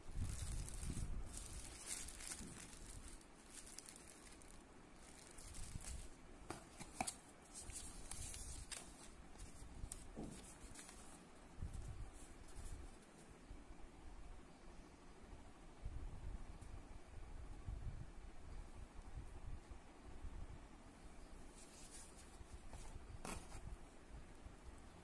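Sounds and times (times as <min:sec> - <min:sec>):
plastic bag crinkling: 0:00.1 - 0:06.2
cardboard and paper rustling: 0:00.2 - 0:13.0, 0:21.6 - 0:23.7.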